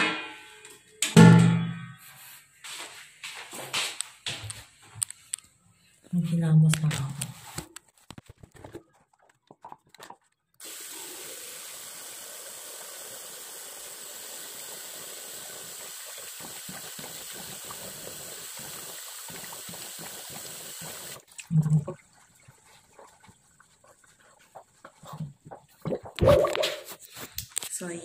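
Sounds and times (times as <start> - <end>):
tap water running into sink: 10.6 - 24.0.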